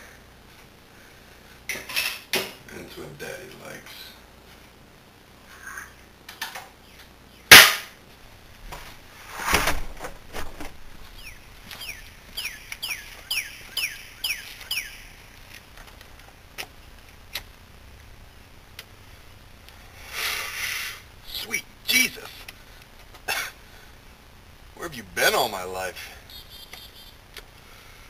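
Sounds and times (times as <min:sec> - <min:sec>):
sharp loud crack: 0:07.5 - 0:08.0
bird chirping downward: 0:11.2 - 0:15.2, 0:26.3 - 0:27.2.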